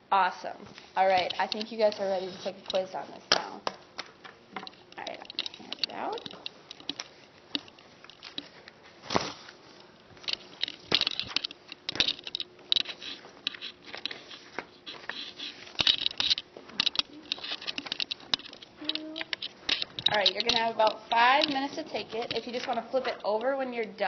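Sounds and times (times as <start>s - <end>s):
paper rustling: 0.7s - 3.3s, 6.1s - 23.7s.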